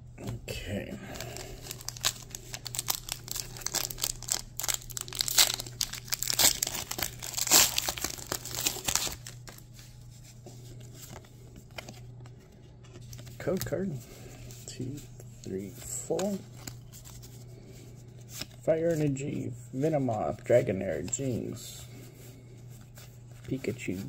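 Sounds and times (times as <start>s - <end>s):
foil wrapper crinkling and tearing: 1.1s - 9.7s.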